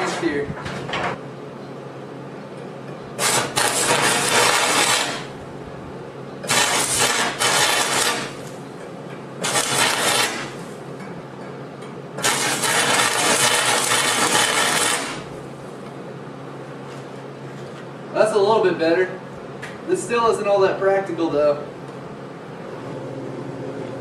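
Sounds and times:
welding arc crackling and hissing: 3.2 - 5.5, 6.4 - 8.6, 9.4 - 10.9, 12.2 - 15.7.

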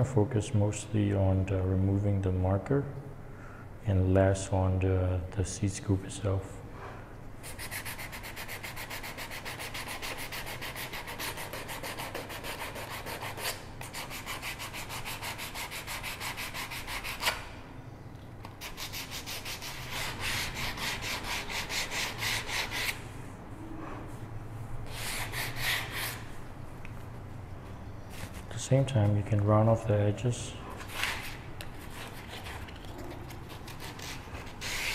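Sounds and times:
sandpaper rubbing on wood: 7.5 - 17.3, 33.6 - 34.9.

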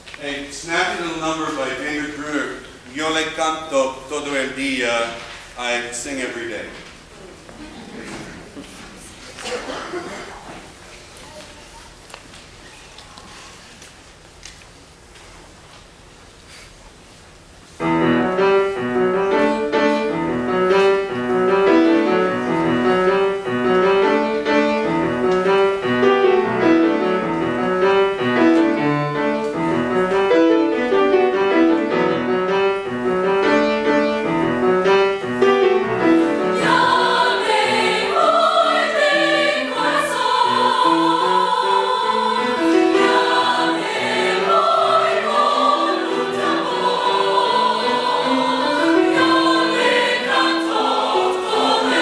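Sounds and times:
mixed choir singing: 35.7 - 52.0.

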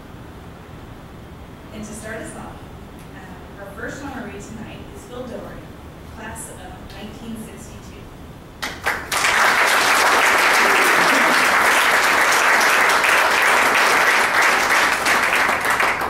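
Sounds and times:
audience applauding: 8.6 - 16.0.

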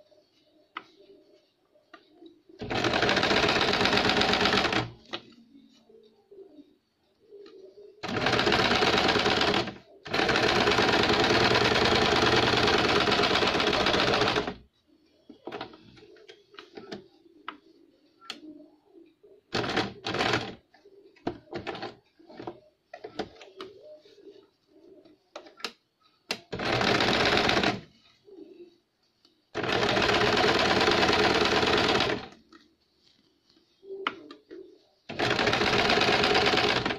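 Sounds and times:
sewing machine stitching: 2.6 - 5.0, 8.0 - 14.6, 19.5 - 20.6, 26.3 - 27.9, 29.6 - 32.4, 35.1 - 36.9.

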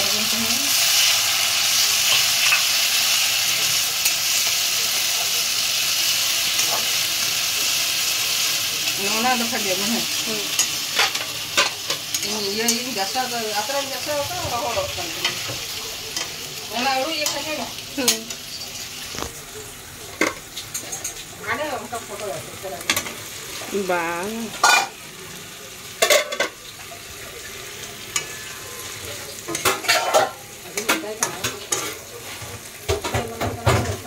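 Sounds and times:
spices sizzling in a pan: 0.0 - 34.0
food clattering into pan: 26.0 - 26.6, 29.4 - 34.0
metal spatula scraping: 28.1 - 32.5.

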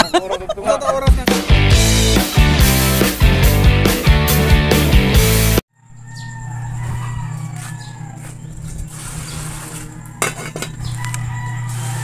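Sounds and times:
pot lid clanking against pan: 10.2 - 10.8.

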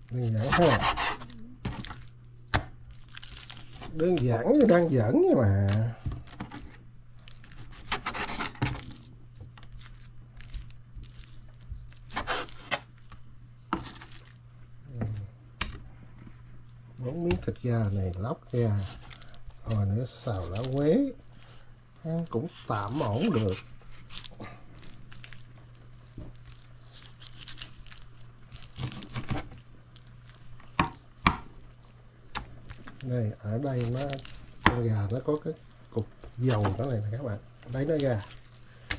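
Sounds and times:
steady low hum: 0.0 - 38.9
meat tearing: 0.1 - 15.3, 16.6 - 38.9
knife scraping meat off bone: 0.3 - 1.4, 7.5 - 8.9, 12.1 - 12.9
knife cutting raw chicken: 0.3 - 1.8.

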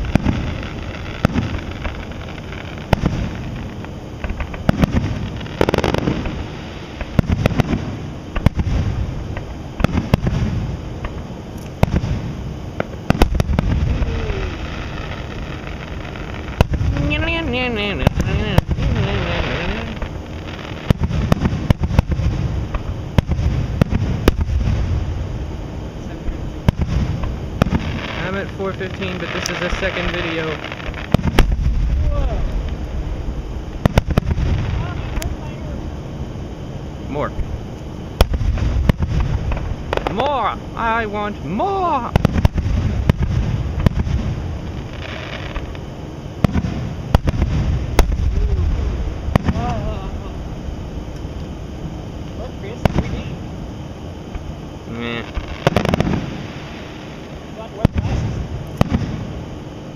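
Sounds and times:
low rumble: 0.0 - 59.5
fireworks bangs: 0.0 - 59.6.

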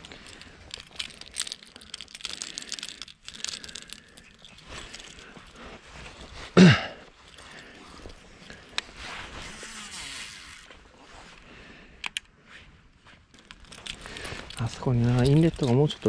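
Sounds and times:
jacket and dry grass rustling: 0.0 - 16.0
fishing reel whirring: 9.4 - 10.7.

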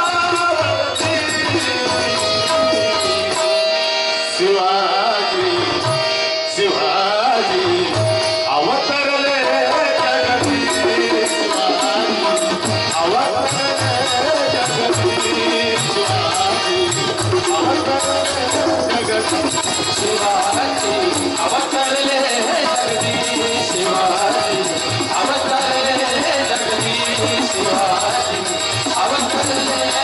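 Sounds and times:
high ticking rhythm: 0.0 - 3.7, 10.2 - 30.0
man singing: 0.0 - 30.0
tabla drumming: 0.0 - 30.0
held drone tone: 0.9 - 4.6.

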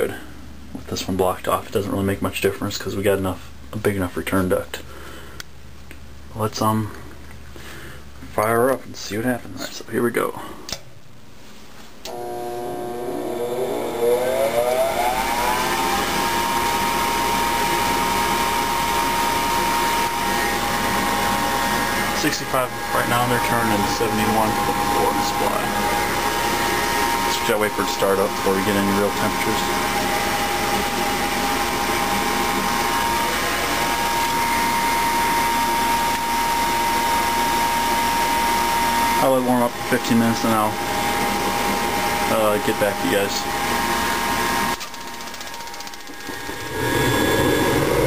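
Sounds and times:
furnace inducer motor whine: 12.0 - 48.0
rushing air: 46.2 - 48.0.

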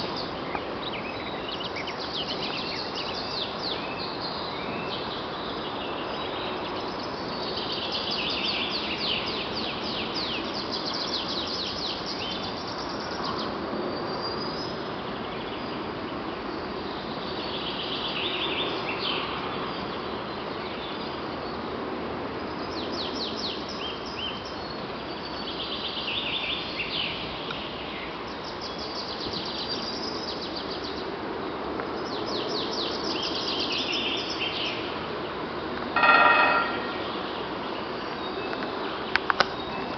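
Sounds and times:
woodpecker drumming on metal: 36.0 - 37.2.

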